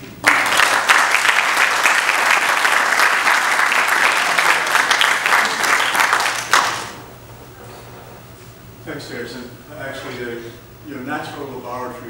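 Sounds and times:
audience applauding: 0:00.2 - 0:07.1.

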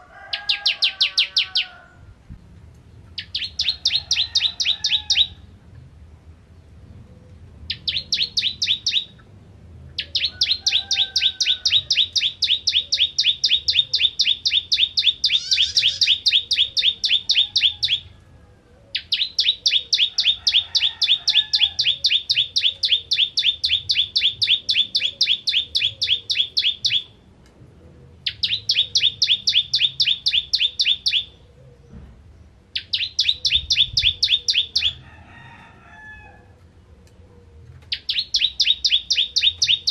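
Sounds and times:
bird singing fast trills: 0:07.7 - 0:09.2, 0:10.0 - 0:18.1, 0:18.9 - 0:27.2, 0:28.2 - 0:31.4, 0:32.8 - 0:35.0, 0:37.9 - 0:39.9.

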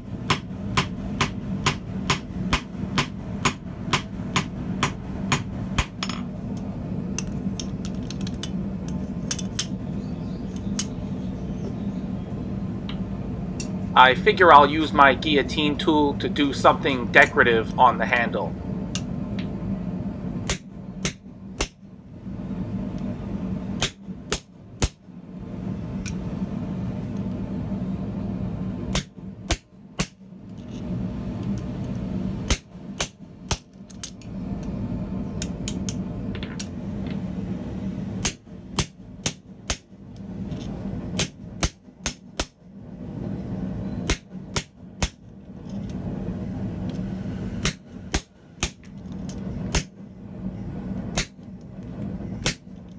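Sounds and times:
steady low hum: 0:00.0 - 0:52.9
hammer striking metal: 0:00.3 - 0:06.2, 0:47.6 - 0:48.8.

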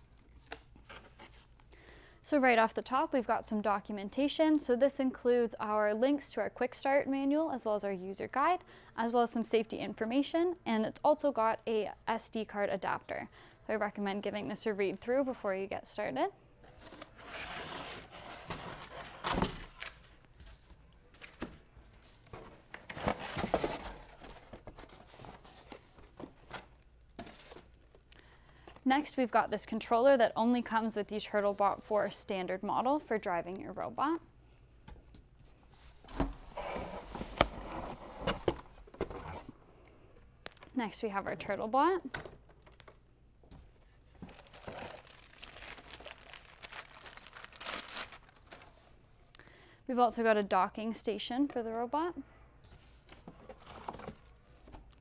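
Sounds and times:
cardboard packaging rustling: 0:16.7 - 0:28.0, 0:43.6 - 0:49.0
plastic bag crinkling: 0:44.1 - 0:48.9.

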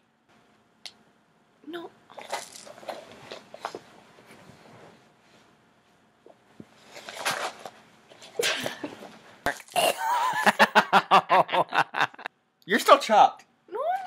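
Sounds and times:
people laughing hard: 0:10.0 - 0:12.3.

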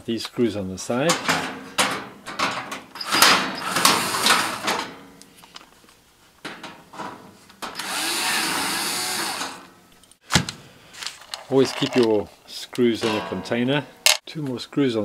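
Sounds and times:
electric screwdriver whirring: 0:07.8 - 0:09.6
handling knocks: 0:13.0 - 0:14.2.

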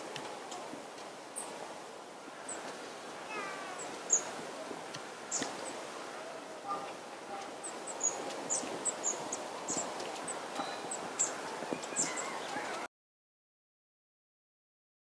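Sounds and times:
lower falling bird call: 0:02.2 - 0:12.9
high-pitched bird calls: 0:06.7 - 0:12.9.

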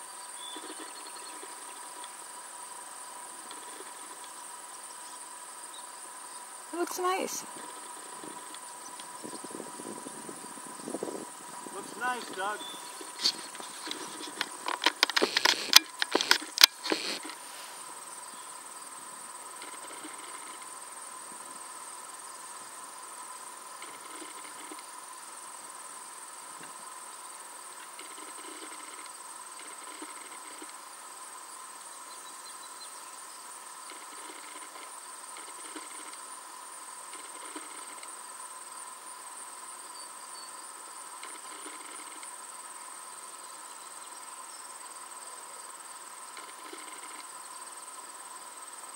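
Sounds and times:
insects chirring: 0:00.0 - 0:48.9
soft insect call: 0:00.0 - 0:48.9
sharp clicks and knocks: 0:13.0 - 0:17.4.

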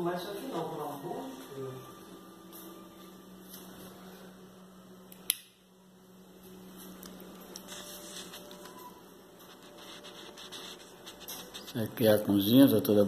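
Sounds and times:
steady low hum: 0:00.0 - 0:13.0
single sharp click: 0:05.1 - 0:05.6.

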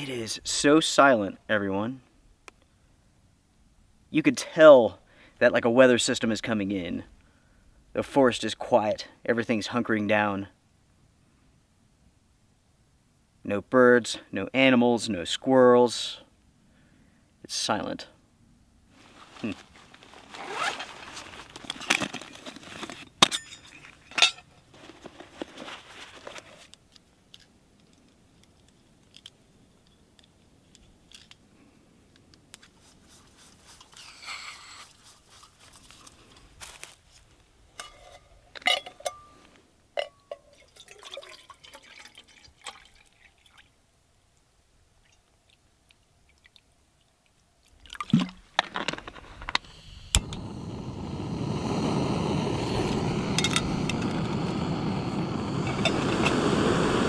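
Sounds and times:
rustling: 0:18.9 - 0:29.3, 0:32.4 - 0:38.6
gas stove burner hissing: 0:49.6 - 0:57.0.

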